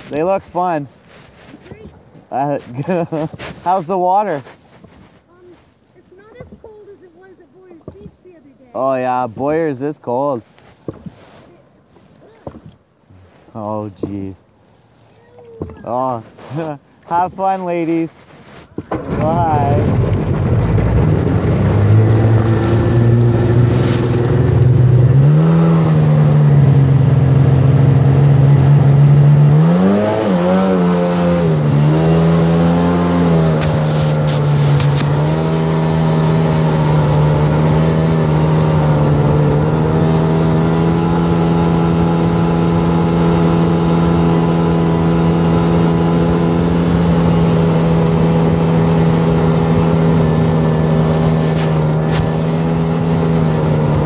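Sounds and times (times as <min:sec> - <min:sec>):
personal watercraft engine revving: 0:18.8 - 0:54.0.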